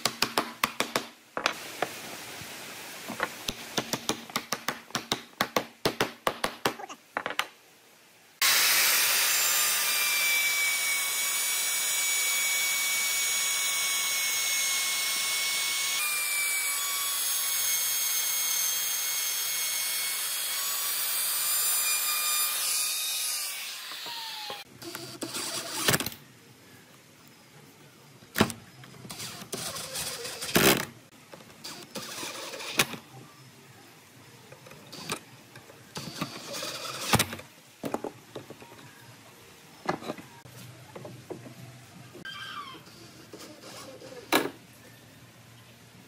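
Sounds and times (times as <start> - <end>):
router whining cutting wood: 8.4 - 24.6.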